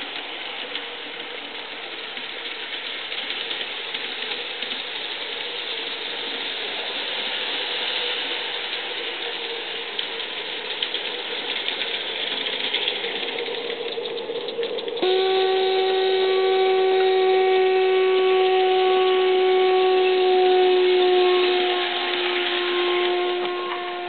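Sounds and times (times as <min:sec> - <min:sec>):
model steam locomotive hissing: 0:00.0 - 0:24.0
steam whistle blowing: 0:15.0 - 0:24.0.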